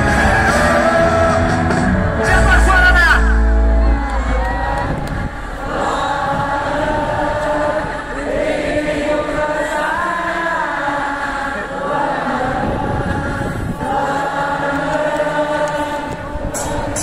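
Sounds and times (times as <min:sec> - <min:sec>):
live rock band: 0:00.0 - 0:04.4
crowd singing along: 0:00.0 - 0:17.0.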